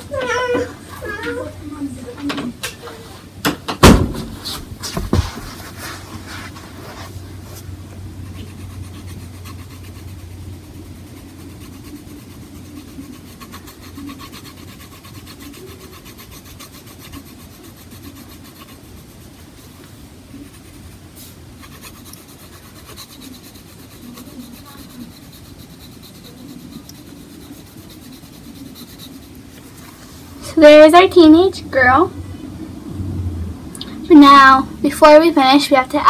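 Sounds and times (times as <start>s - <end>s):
knock: 3.4s - 5.4s
pencil scratching on paper: 5.0s - 19.7s, 20.3s - 30.0s.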